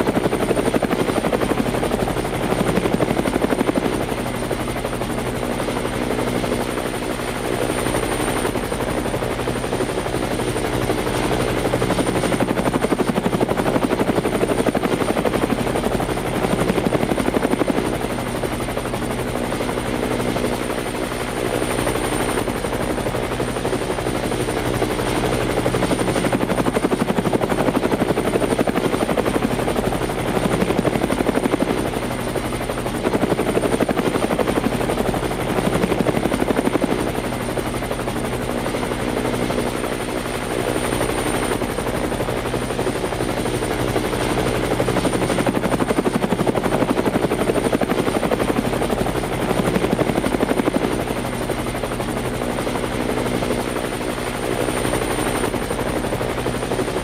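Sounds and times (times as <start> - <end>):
helicopter engine hum: 0.0 - 57.0
helicopter rotor chopping: 0.0 - 57.0.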